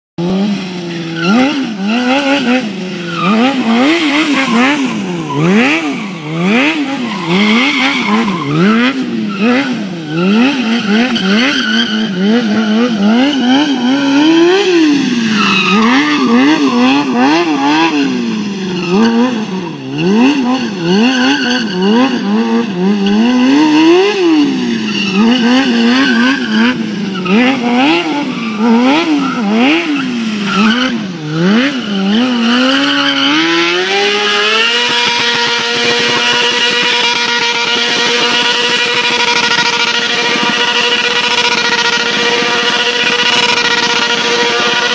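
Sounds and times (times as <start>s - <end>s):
motorcycle engine revving: 0.2s - 44.9s
tyre squeal: 0.8s - 44.9s.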